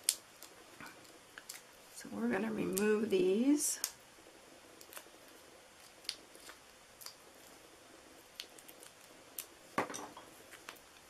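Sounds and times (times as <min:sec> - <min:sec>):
faint clicks and ticks: 0:03.8 - 0:04.0.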